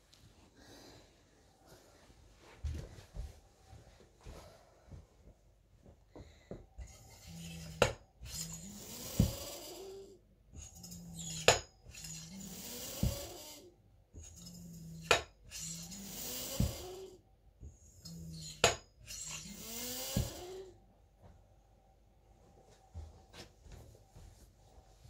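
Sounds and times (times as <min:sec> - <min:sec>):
hand pump air hissing: 0:19.1 - 0:20.6.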